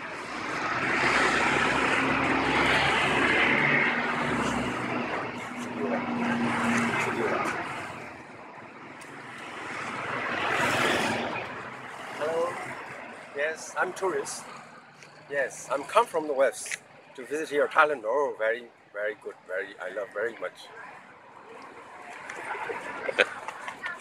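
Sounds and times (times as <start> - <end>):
passing motor vehicles: 0.0 - 24.0.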